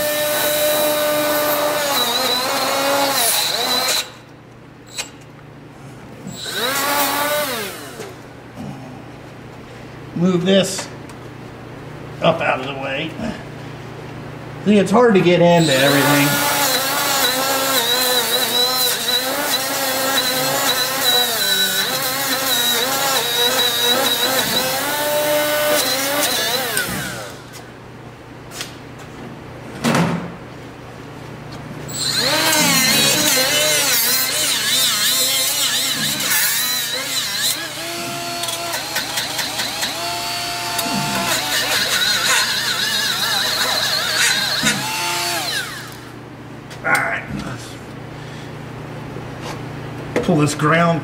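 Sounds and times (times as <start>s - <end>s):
die grinder with wire wheel on steel: 0.0s - 4.2s, 6.3s - 8.2s, 15.6s - 27.5s, 31.9s - 46.1s.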